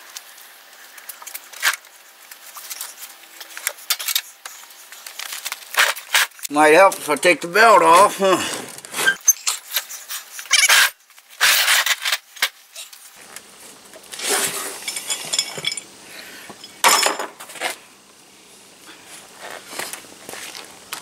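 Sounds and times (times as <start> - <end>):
metal clinks scrapes and rattles: 14.6 - 16.0.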